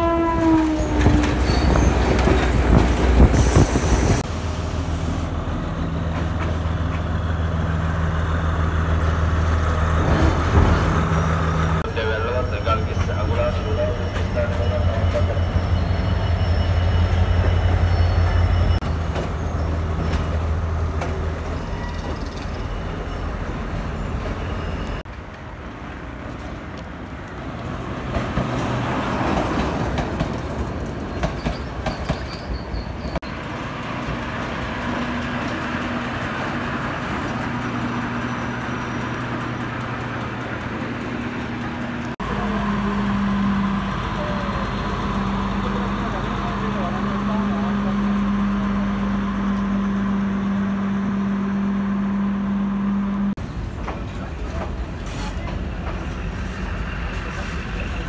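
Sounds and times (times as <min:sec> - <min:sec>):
diesel locomotive engine droning: 0:00.0 - 0:58.0
train rumbling on rails: 0:00.0 - 0:58.0
train engine idling hum: 0:33.5 - 0:58.0.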